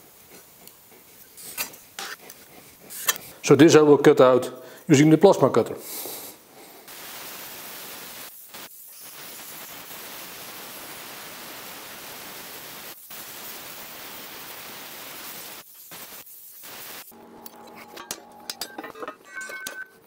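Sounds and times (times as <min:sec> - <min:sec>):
plasma cutter hissing: 0:06.9 - 0:17.2.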